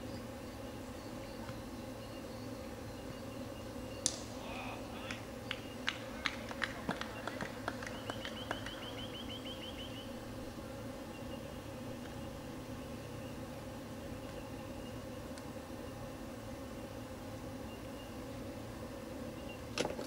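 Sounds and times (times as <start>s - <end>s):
low outdoor hum: 0.0s - 20.0s
bird chirping: 7.1s - 10.2s.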